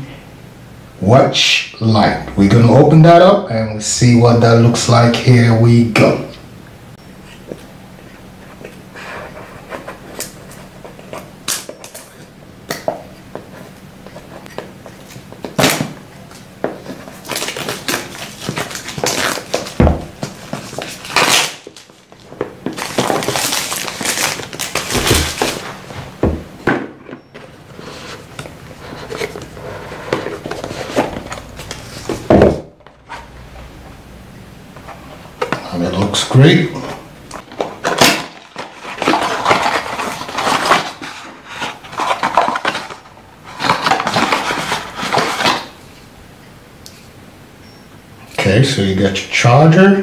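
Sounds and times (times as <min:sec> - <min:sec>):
plastic wrapping crinkling: 0:15.1 - 0:26.2, 0:37.4 - 0:45.8
cardboard box rustling: 0:16.8 - 0:26.5, 0:37.4 - 0:45.7.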